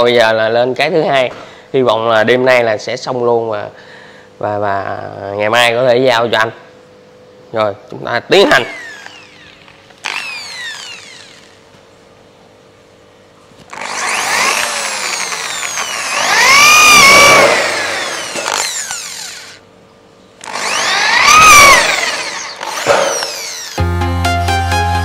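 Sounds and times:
electric drill boring into metal: 8.5s - 11.6s, 13.7s - 19.6s, 20.4s - 23.8s.

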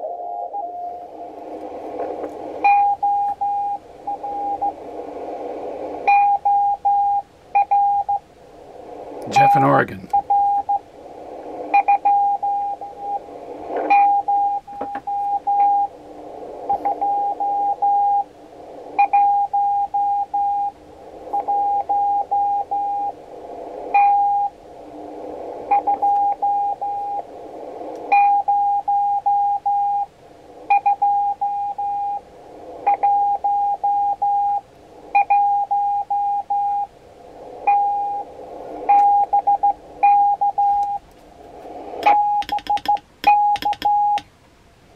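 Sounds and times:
radio band hiss: 0.0s - 44.1s
morse code tone: 42.0s - 44.2s.

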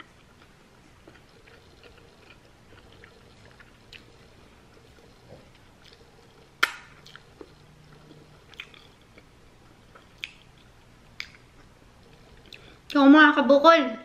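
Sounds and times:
wet mouth smacks: 10.1s - 10.5s.

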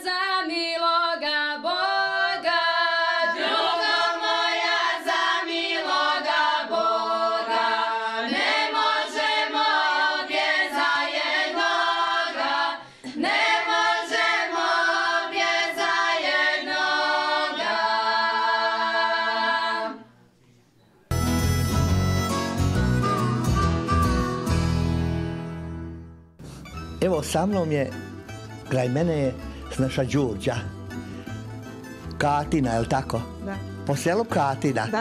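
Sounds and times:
women singing unaccompanied: 0.0s - 20.0s.

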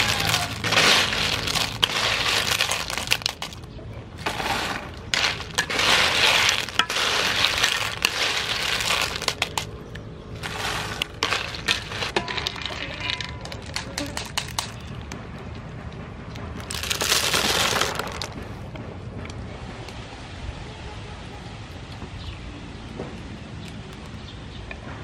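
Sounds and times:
shells clattering in a metal wok: 0.0s - 9.7s, 10.4s - 14.8s.

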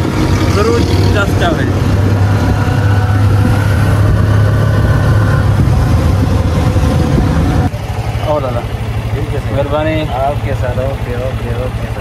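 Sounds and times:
high whine: 0.0s - 8.6s
auto-rickshaw engine drone: 0.0s - 12.0s.

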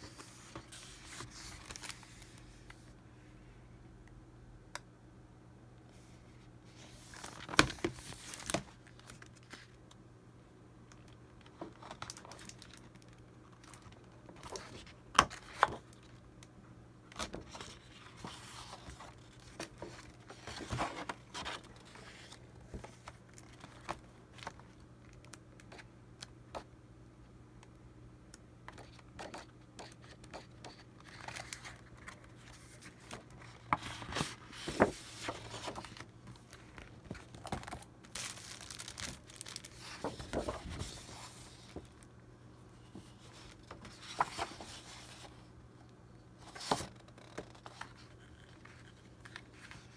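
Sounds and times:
pages turning: 0.0s - 2.8s, 6.8s - 9.7s, 13.6s - 16.2s, 17.2s - 25.8s, 28.8s - 42.1s, 42.9s - 45.3s, 46.4s - 49.9s
paper rustling and crinkling: 0.0s - 2.8s, 6.7s - 9.7s, 17.2s - 25.9s, 28.8s - 42.1s, 42.8s - 45.4s, 46.4s - 49.9s.

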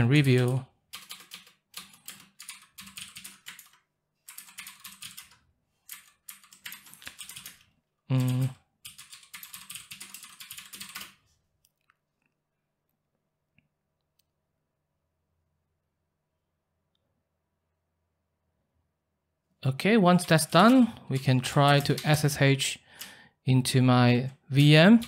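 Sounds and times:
person's voice: 0.0s - 0.7s, 8.1s - 8.6s, 19.6s - 22.8s, 23.5s - 25.0s
typing on computer keyboard: 0.1s - 11.2s, 20.1s - 23.1s, 24.5s - 25.0s.

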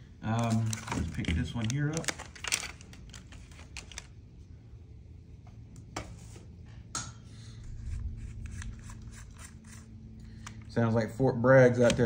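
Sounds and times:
distant boom rumbling: 7.6s - 10.4s.

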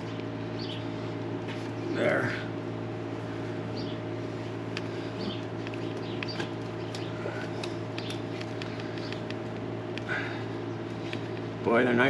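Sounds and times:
low mechanical hum: 0.0s - 12.0s
high chirps and ticks: 5.2s - 10.1s.

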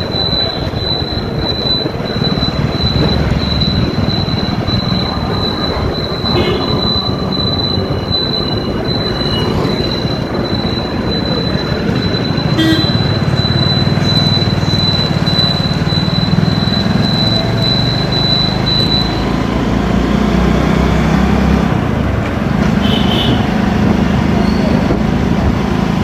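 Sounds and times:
wind rumble: 0.0s - 17.3s
thin high whine: 0.0s - 19.2s
short high tones: 0.0s - 19.4s
motorbike engine: 0.0s - 26.0s.

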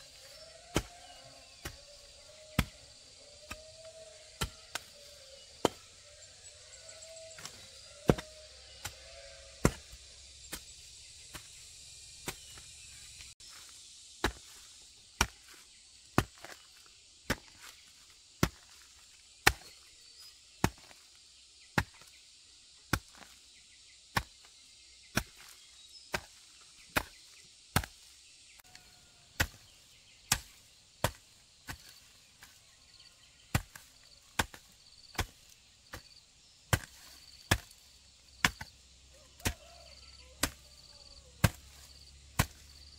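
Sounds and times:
hand tool chopping strikes: 0.7s - 1.0s, 1.6s - 2.8s, 5.6s - 5.8s, 7.4s - 10.7s, 27.8s - 28.0s, 29.4s - 32.5s, 33.5s - 36.1s, 36.7s - 37.8s, 38.4s - 38.7s, 40.4s - 40.6s, 41.4s - 42.7s.

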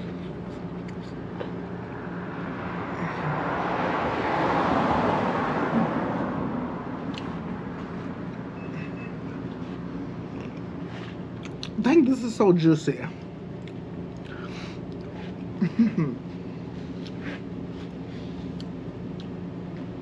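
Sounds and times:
vehicle driving past: 1.6s - 9.8s.

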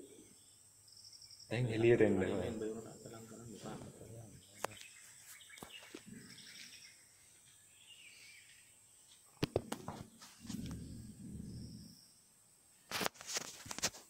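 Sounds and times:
faint bird chirps: 0.0s - 12.9s.

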